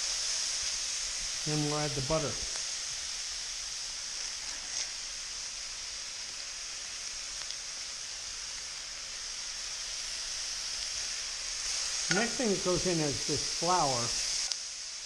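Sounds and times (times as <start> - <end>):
food sizzling in a pot: 0.0 - 15.0.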